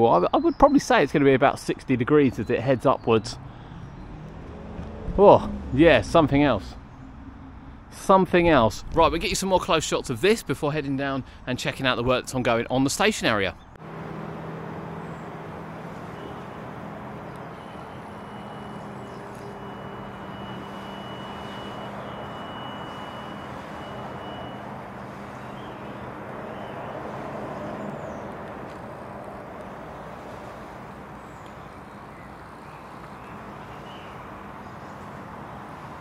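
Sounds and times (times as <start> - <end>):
engine humming: 2.3 - 8.6, 13.7 - 36.0
traffic hiss: 13.9 - 36.0.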